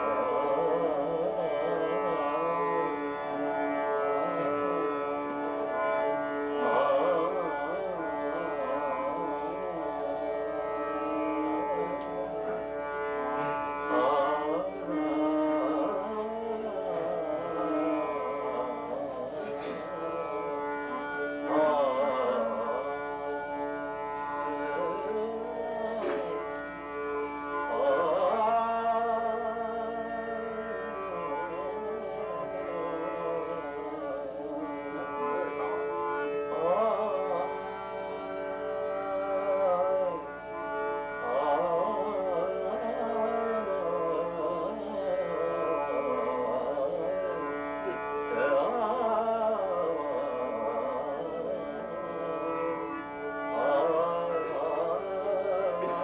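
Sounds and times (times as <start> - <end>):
man singing: 0.0 - 3.0, 6.5 - 10.1, 13.4 - 23.3, 24.4 - 26.4, 27.6 - 35.8, 36.5 - 38.2, 38.8 - 40.4, 41.2 - 56.0
harmonium: 0.0 - 56.0.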